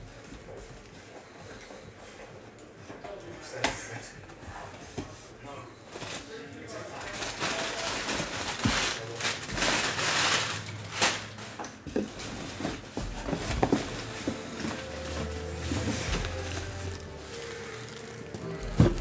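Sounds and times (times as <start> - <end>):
cardboard box rustling and scraping: 11.8 - 19.0.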